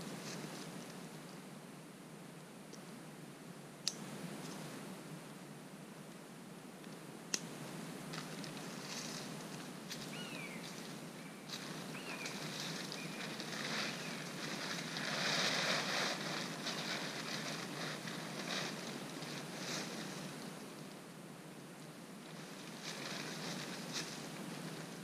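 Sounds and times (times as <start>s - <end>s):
tarp rustling and flapping: 8.2s - 20.8s, 22.2s - 25.0s.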